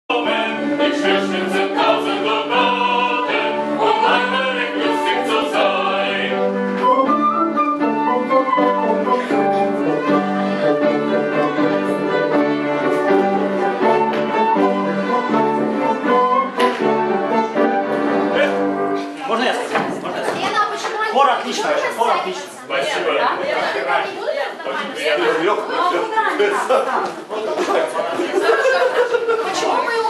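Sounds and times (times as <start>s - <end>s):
vocal ensemble singing: 0.1s - 18.6s.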